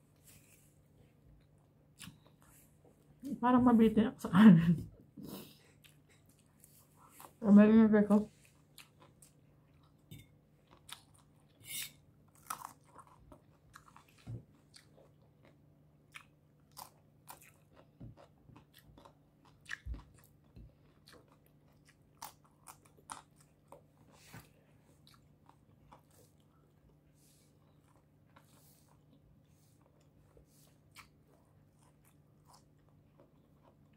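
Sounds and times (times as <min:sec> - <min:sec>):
faint steady hum: 0:00.0 - 0:33.9
crunching and chewing: 0:01.4 - 0:02.7, 0:08.4 - 0:33.9.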